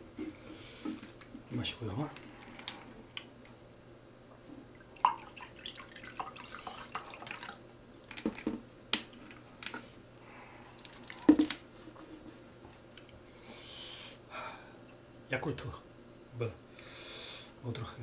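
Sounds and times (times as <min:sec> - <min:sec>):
juice pouring into a cup: 0:04.8 - 0:08.6.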